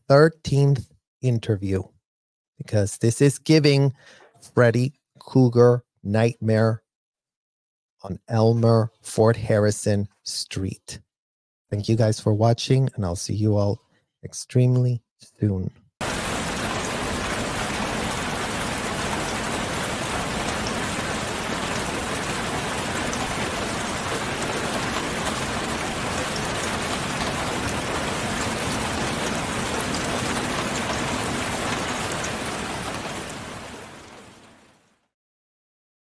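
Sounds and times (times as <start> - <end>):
rain-like hiss: 16.0 - 34.8.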